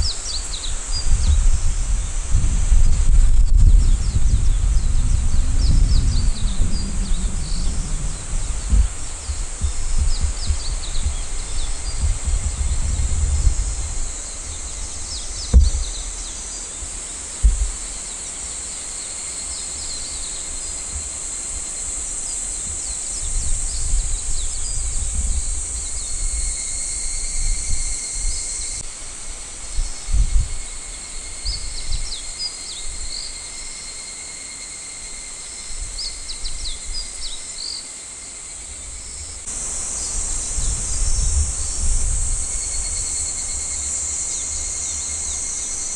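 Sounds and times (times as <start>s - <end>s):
low rumbles on microphone: 0.0s - 18.0s, 22.6s - 26.6s, 39.0s - 44.5s
insects chorus: 0.0s - 45.9s
short low thumps: 2.4s - 16.3s, 17.4s - 17.8s.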